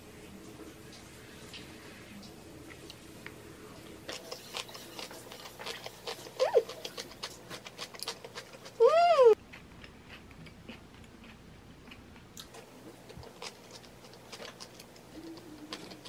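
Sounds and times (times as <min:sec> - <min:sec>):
person chewing food: 0:04.0 - 0:16.0.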